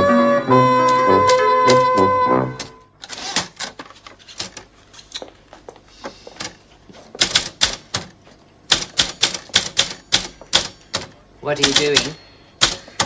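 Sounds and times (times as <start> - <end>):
typewriter keys clacking: 0.8 - 3.7, 7.2 - 8.1, 8.7 - 13.0.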